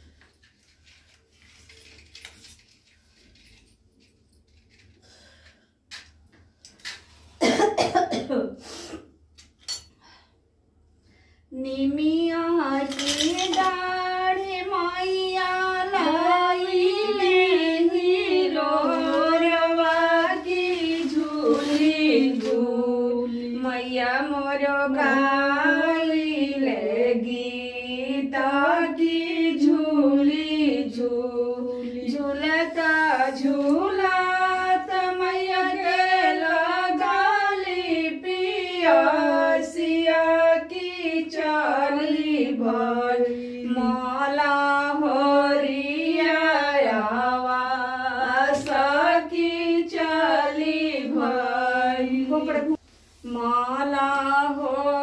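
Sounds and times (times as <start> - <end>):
woman singing unaccompanied: 11.5 - 55.0.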